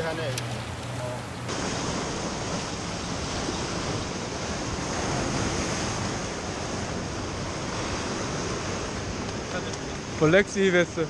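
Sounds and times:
ocean surf on rocks: 0.0s - 11.0s.

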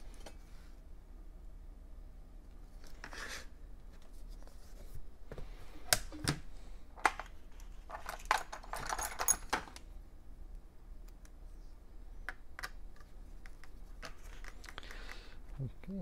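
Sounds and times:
screws rustling in plastic tray: 7.2s - 9.8s.

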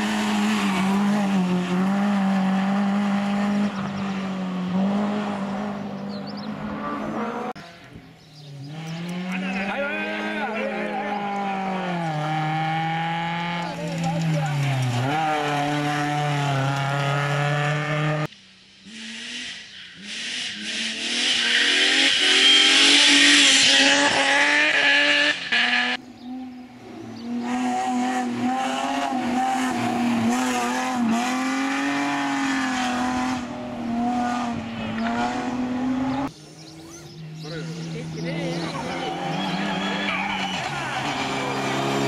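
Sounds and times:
race car engines running hard: 8.2s - 18.3s, 26.2s - 42.0s
tyre squeal: 38.4s - 41.8s.

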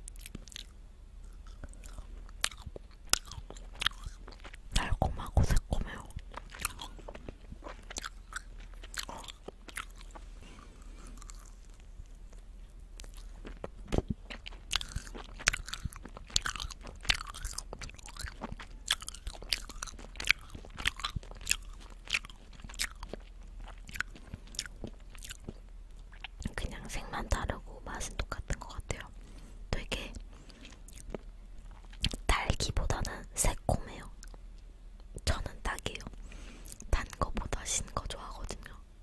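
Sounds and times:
chewing gummy candies: 0.0s - 34.4s, 35.0s - 38.8s.

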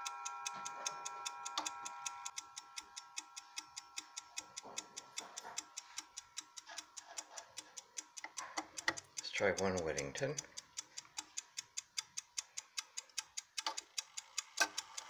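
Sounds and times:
clock ticking: 0.0s - 15.0s.

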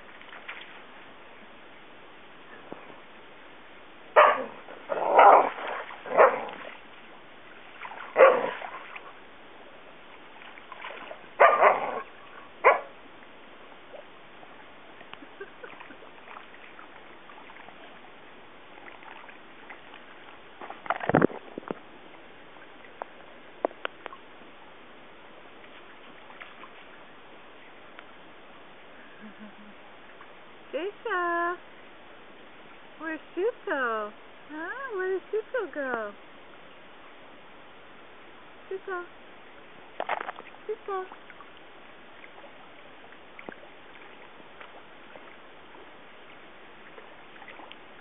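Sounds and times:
dog barking: 4.2s - 4.6s, 6.1s - 6.5s, 8.2s - 8.6s, 11.4s - 12.9s.

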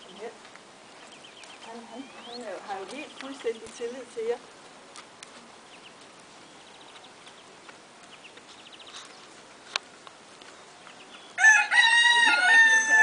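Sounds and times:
rooster crowing: 11.4s - 13.0s.

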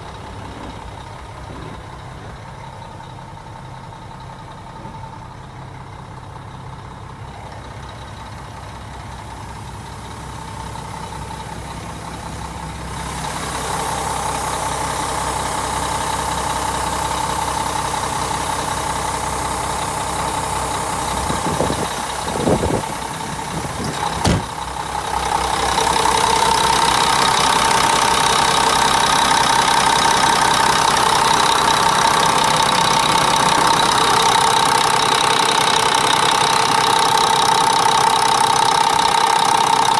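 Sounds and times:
diesel engine idling: 0.0s - 39.9s
brief thumps: 23.8s - 24.6s.

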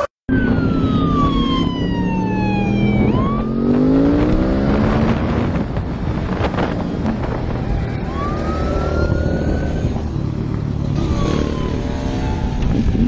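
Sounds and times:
police siren wailing: 0.0s - 4.7s, 7.5s - 13.0s
motorbike engine revving: 0.6s - 13.0s.

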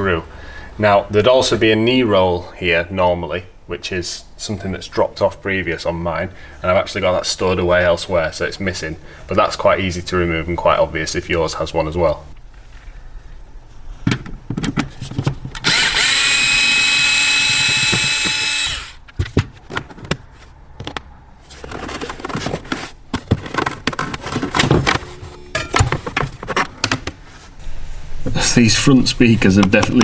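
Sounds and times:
electric screwdriver whining: 15.6s - 19.0s.

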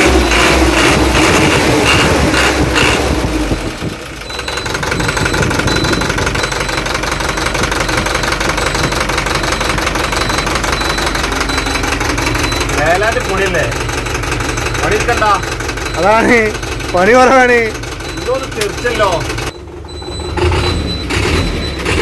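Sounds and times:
bus diesel engine idling: 0.0s - 22.0s
faint high beep: 4.2s - 13.5s, 14.9s - 16.6s, 17.4s - 21.9s.

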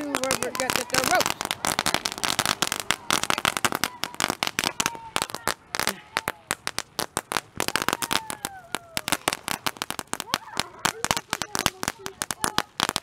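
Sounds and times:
firecrackers popping: 0.0s - 13.0s.

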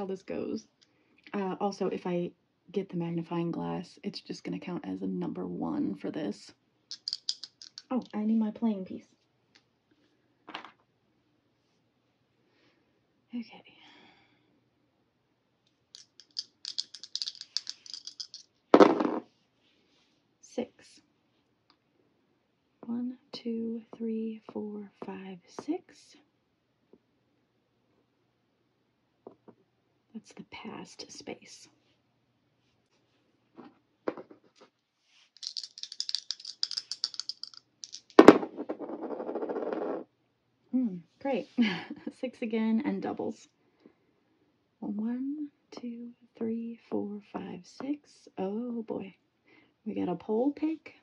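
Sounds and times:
dice rattling in hands: 6.9s - 8.2s, 16.0s - 19.2s, 35.4s - 40.0s.

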